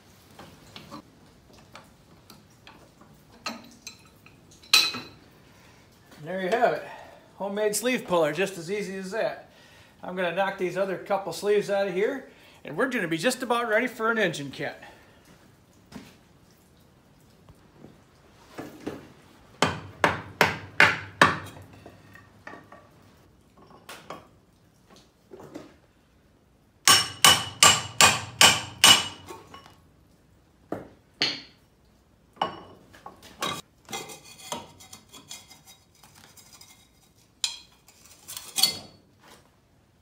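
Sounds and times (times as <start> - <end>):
hammer striking metal: 26.9 - 29.3.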